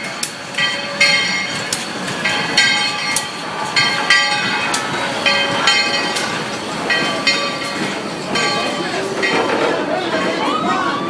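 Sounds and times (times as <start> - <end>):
steam locomotive bell ringing: 0.0 - 11.0
train rumble: 0.0 - 11.0.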